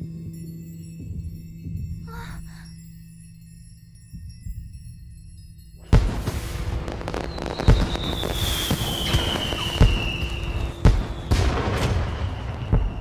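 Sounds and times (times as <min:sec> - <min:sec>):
falling firework whistle: 0:05.8 - 0:13.0
fireworks crackling: 0:05.8 - 0:13.0
fireworks deep booms: 0:05.8 - 0:13.0.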